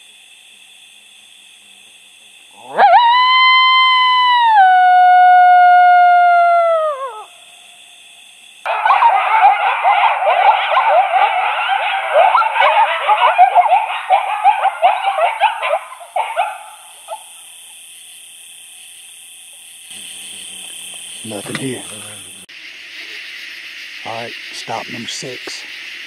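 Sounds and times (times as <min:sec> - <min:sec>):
recorded coyote howls and yips: 0:02.6 - 0:07.6, 0:08.7 - 0:17.5.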